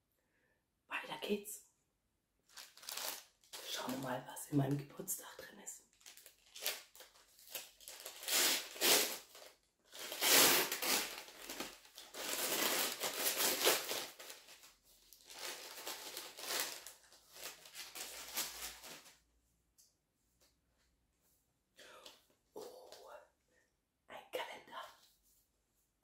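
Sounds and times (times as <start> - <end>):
paper bag crinkling and tearing: 2.5 - 4.0, 5.9 - 19.2.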